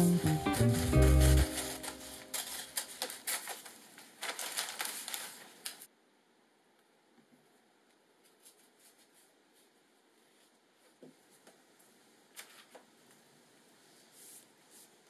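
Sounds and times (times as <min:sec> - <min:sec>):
paper rustling: 0:00.0 - 0:05.9, 0:12.3 - 0:12.9.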